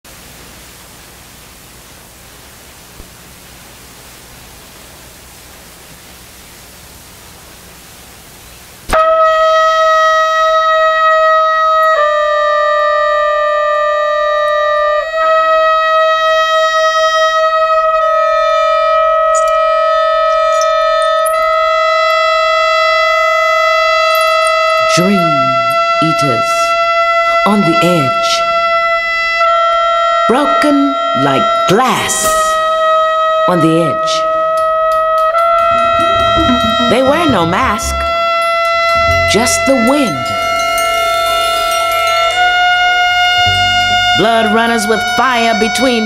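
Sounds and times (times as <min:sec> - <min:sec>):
steady hiss: 0:00.1 - 0:08.9
wind instrument long notes: 0:08.9 - 0:46.0.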